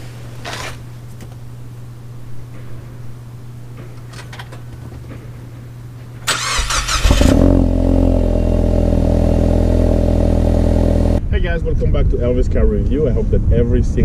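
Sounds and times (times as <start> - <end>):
starter motor cranking: 6.3 - 7.5
car engine idling: 6.3 - 11.2.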